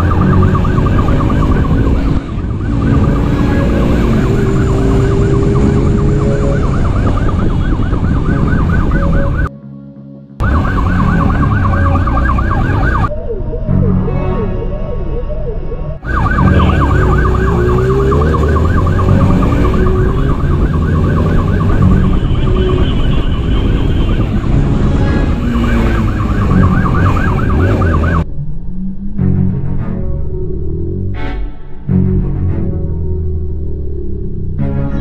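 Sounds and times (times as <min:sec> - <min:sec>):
motorcycle engine: 0:00.0 - 0:09.5, 0:16.0 - 0:28.6
motorcycle siren yelping: 0:00.0 - 0:09.5, 0:10.4 - 0:29.1.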